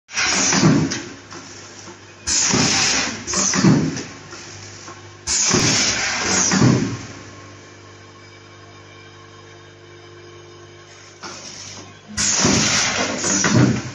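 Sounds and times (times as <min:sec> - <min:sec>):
packing machine noise bursts: 0:00.1 - 0:07.1, 0:11.2 - 0:13.9
low machine hum: 0:00.1 - 0:13.9.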